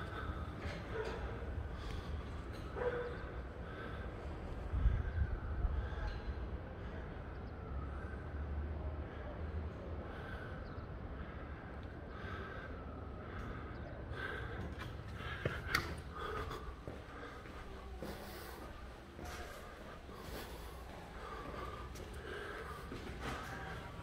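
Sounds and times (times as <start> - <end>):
wind buffeting microphone: 3.2 - 6.6.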